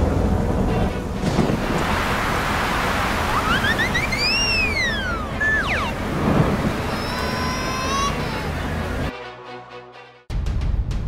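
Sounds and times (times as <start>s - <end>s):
rain hissing: 0.0s - 9.1s
cartoon whistle: 3.3s - 6.0s, 6.7s - 8.4s.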